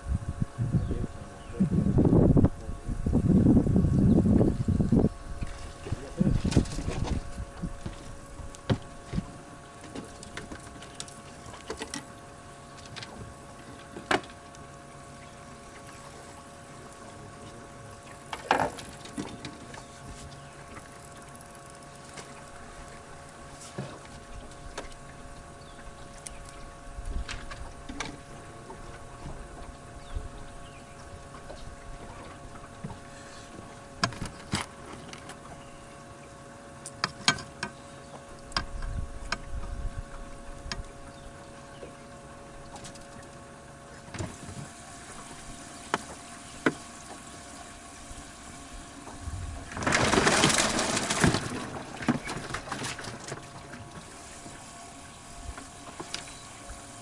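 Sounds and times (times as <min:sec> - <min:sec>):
faint steady hum: 0:00.0 - 0:57.0
water splashing: 0:44.0 - 0:56.8.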